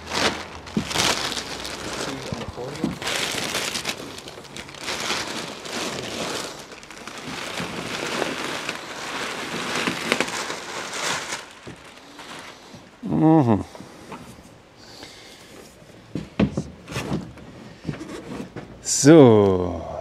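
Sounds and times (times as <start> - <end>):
packaging rustling and crinkling: 0.0 - 13.0.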